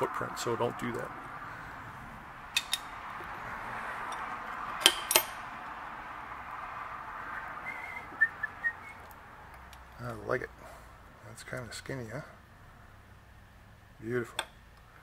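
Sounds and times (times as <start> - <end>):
steady background hiss: 0.0 - 15.0
metal wheel clinking: 2.5 - 3.0, 4.0 - 5.5.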